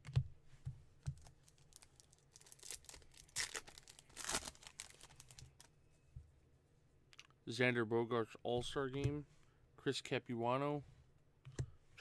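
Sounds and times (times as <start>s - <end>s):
foil wrapper tearing and crinkling: 1.5s - 5.7s.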